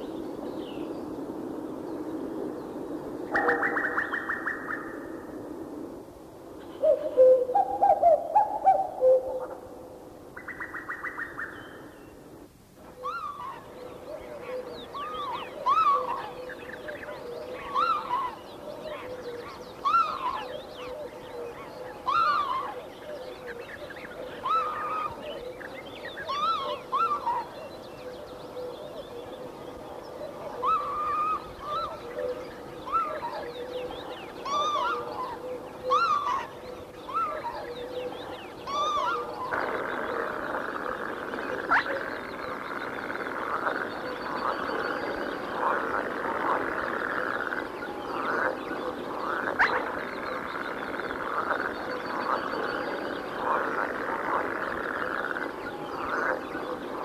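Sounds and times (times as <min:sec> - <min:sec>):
chorus of chattering animal calls: 0:21.4 - 0:27.7, 0:30.4 - 0:57.0.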